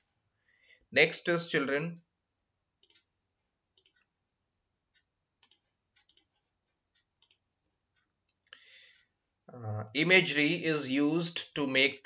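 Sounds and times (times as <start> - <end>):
computer mouse clicks: 2.8 - 3.1, 3.7 - 4.1, 5.4 - 8.6.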